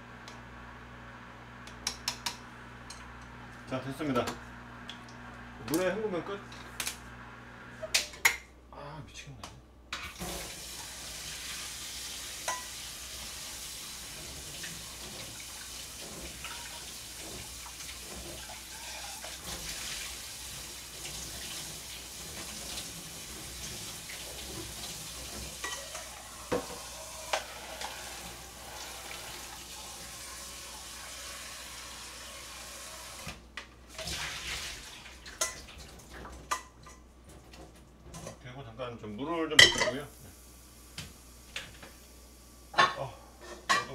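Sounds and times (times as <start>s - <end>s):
tap water running into pot: 10.0s - 37.6s.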